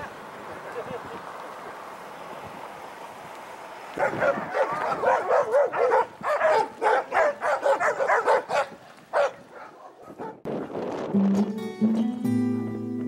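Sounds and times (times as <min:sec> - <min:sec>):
dog barking: 0:04.0 - 0:10.4.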